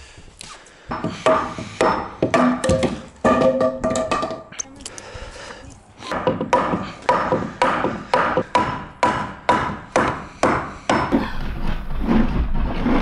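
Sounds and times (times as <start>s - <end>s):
hammer striking wooden block: 0.9s - 4.4s, 6.1s - 11.2s.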